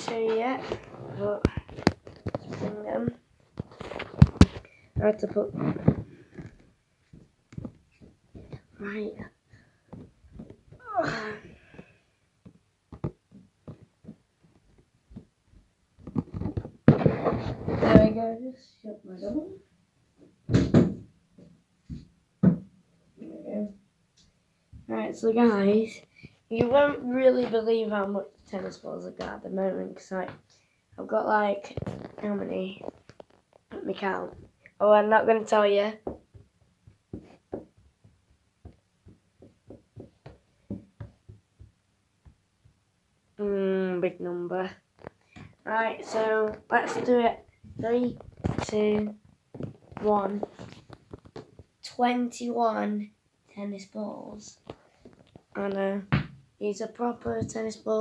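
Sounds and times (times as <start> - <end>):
rubbing on microphone: 0.0 - 9.3, 16.0 - 18.3, 31.6 - 34.7, 45.0 - 51.7
soft taps and thumps: 0.0 - 10.9, 11.6 - 18.2, 20.2 - 22.8, 36.0 - 42.8, 44.9 - 45.6, 46.4 - 51.8, 54.6 - 56.5.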